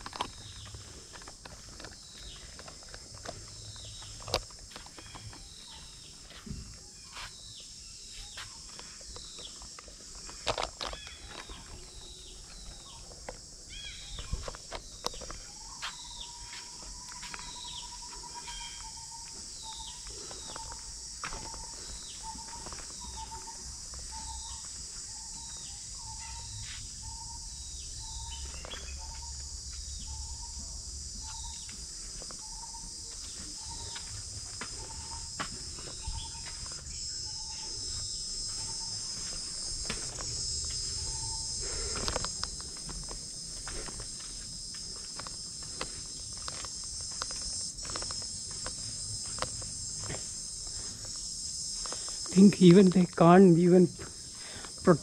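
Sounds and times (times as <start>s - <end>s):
high drone of insects: 0.0s - 55.0s
birds chirping: 10.2s - 44.7s.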